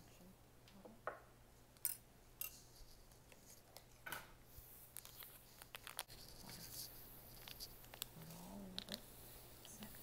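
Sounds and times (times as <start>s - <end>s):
foil packet crinkling: 5.0s - 6.7s.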